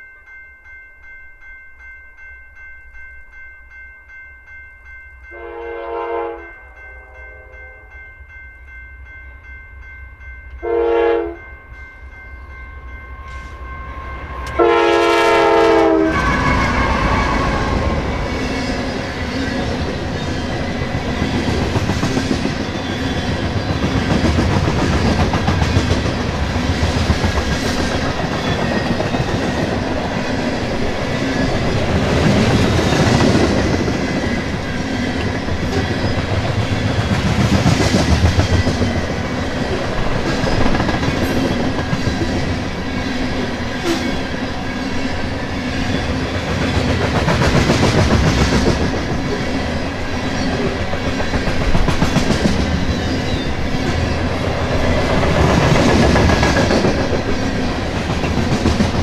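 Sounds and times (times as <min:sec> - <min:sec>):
locomotive air horn blasts: 0:05.3 - 0:07.9, 0:10.6 - 0:11.4, 0:14.5 - 0:17.9
train wheels clattering on rails: 0:14.3 - 0:59.0.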